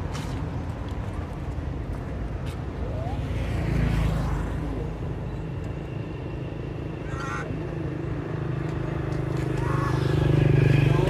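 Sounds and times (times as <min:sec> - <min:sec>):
monkey squealing: 0:07.1 - 0:07.5.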